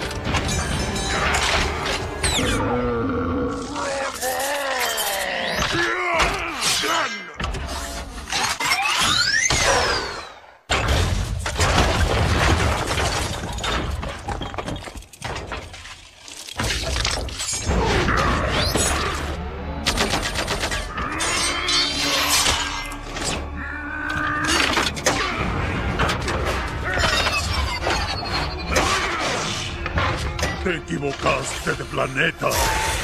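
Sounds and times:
film music: 0.0 - 4.4, 17.7 - 33.0.

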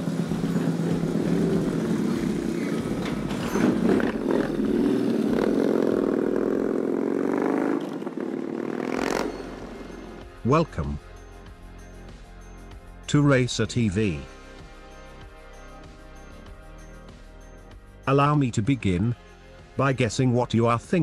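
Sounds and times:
motorcycle v-twin engine running: 0.0 - 9.0.

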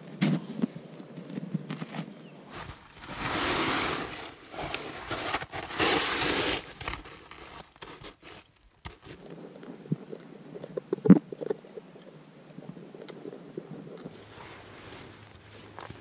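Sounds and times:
boots crunching on packed snow: 2.5 - 9.2
clothing rustling and scraping: 2.5 - 9.3, 14.1 - 16.0.

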